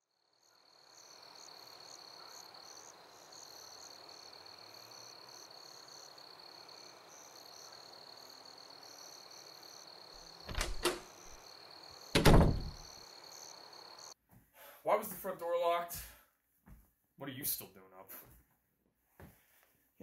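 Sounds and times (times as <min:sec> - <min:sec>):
crickets chirping: 0:00.0 - 0:14.2
faint outdoor hiss: 0:00.1 - 0:16.3.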